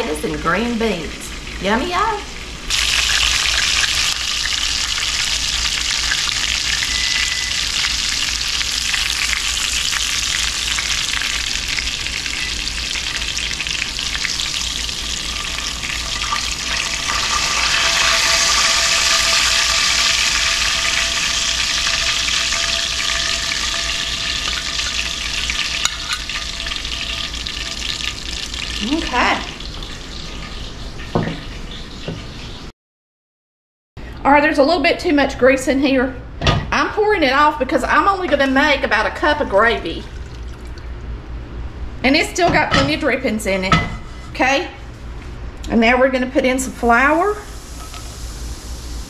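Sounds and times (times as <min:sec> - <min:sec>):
chicken frying sizzle: 0:00.0 - 0:32.7, 0:46.6 - 0:49.0.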